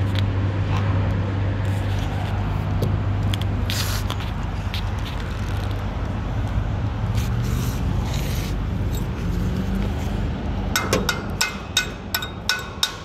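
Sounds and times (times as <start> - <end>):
hammer striking steel: 10.7 - 13.0.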